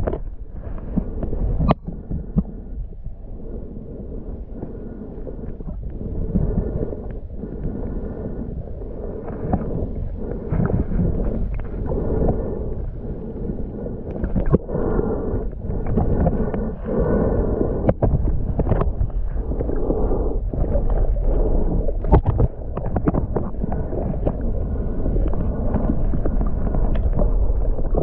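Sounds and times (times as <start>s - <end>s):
underwater sloshing and gurgling: 0.0s - 28.0s.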